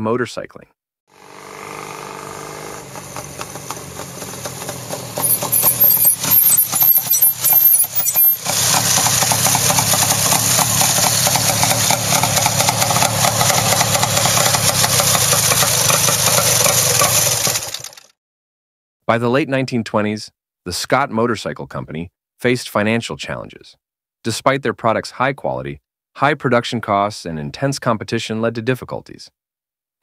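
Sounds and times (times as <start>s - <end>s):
motorcycle engine revving: 1.1s - 18.1s.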